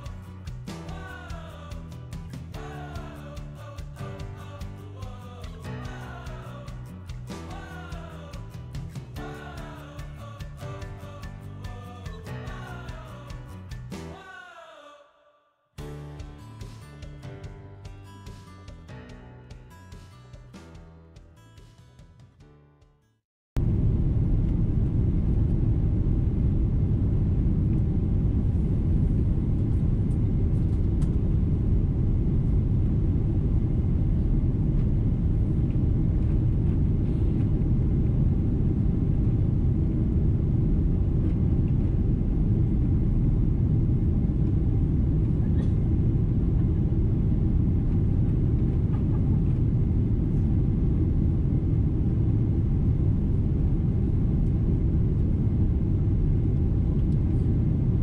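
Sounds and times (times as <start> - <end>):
airliner engines rumbling in cabin: 23.6 - 58.0.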